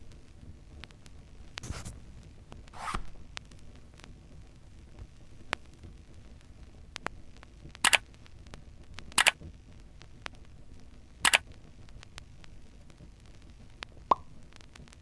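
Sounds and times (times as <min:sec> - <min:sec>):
faint ticks: 0:04.9 - 0:15.0
sharp double click: 0:07.8 - 0:08.0, 0:11.2 - 0:11.4.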